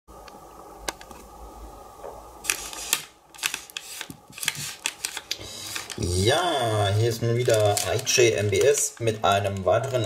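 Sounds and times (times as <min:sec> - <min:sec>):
plastic wrapper crinkling: 0:02.4 - 0:10.0.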